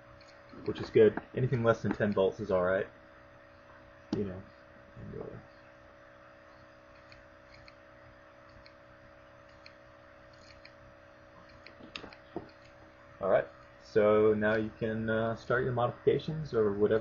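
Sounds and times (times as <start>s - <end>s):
faint steady hum with hiss: 0.0s - 17.0s.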